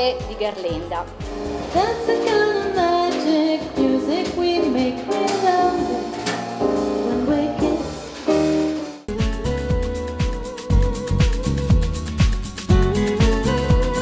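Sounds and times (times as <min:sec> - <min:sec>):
drum kit: 0:00.0 - 0:14.0
electric keyboard: 0:01.0 - 0:14.0
woman singing into microphone: 0:01.7 - 0:08.2, 0:09.1 - 0:11.8, 0:12.7 - 0:14.0.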